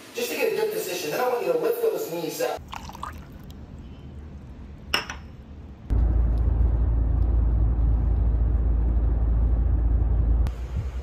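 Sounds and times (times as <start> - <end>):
car cabin road rumble: 5.9 - 11.0.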